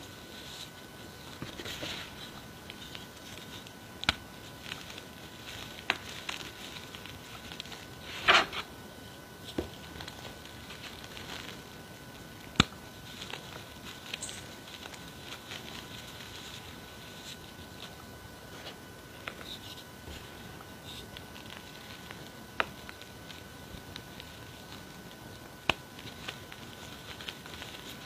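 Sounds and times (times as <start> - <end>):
chalk crunching and rustling: 0.0 - 8.7, 9.4 - 28.0.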